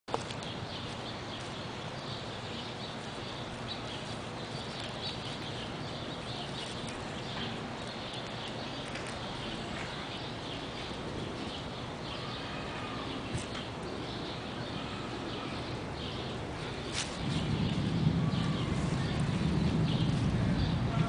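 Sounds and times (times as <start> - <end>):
outdoor background noise: 0.0 - 21.0.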